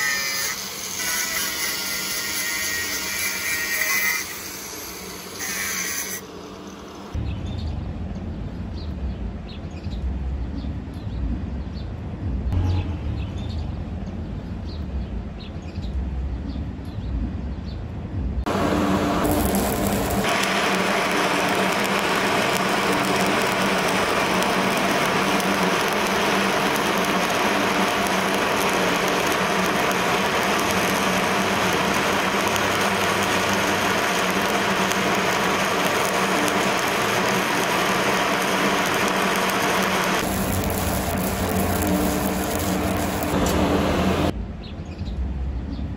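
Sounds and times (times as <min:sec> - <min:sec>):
welding arc crackling and sizzling: 0:00.0 - 0:07.2, 0:18.5 - 0:44.4.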